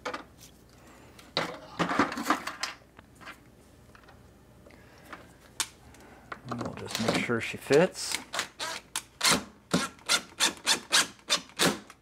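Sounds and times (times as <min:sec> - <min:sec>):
cordless drill: 0:08.6 - 0:11.8.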